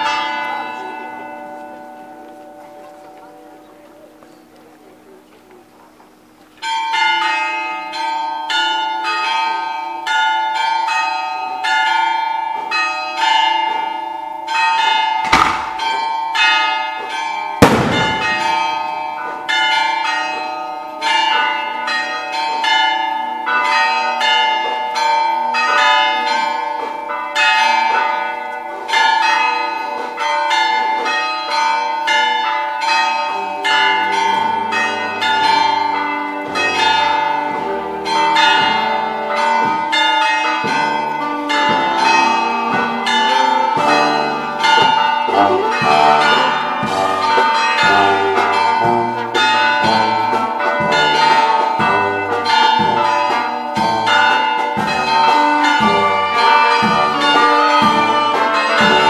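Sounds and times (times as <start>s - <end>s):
church bells ringing: 0.0s - 59.0s
sharp bangs: 15.2s - 16.0s, 17.6s - 18.8s.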